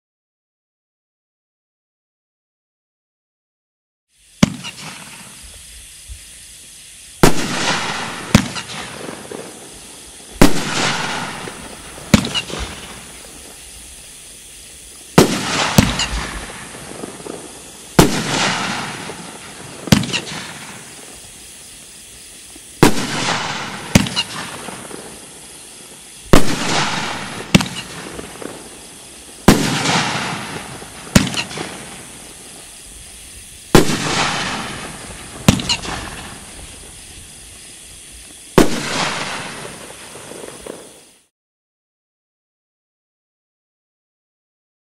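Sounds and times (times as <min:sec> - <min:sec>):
firework shell bangs with hiss: 0:04.2 - 0:41.3
firework launch thumps: 0:04.4 - 0:41.2.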